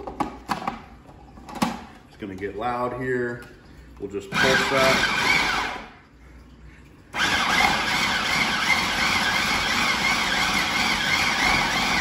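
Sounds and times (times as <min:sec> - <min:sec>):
food processor whirring: 0:04.3 - 0:05.9, 0:07.2 - 0:12.0.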